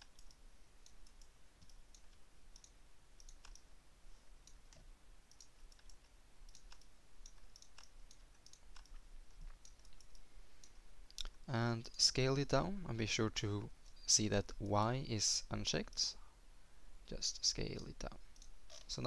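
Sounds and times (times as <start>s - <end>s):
computer mouse clicks: 0.0s - 3.7s, 4.4s - 12.0s, 18.3s - 18.9s.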